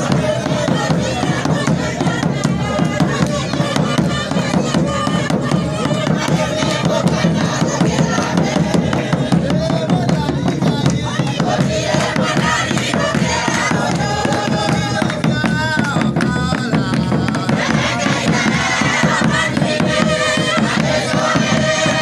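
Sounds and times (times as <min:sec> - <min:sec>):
group of people singing: 0:00.0 - 0:22.0
hand drum beat: 0:00.0 - 0:22.0
hand clapping: 0:12.0 - 0:18.1.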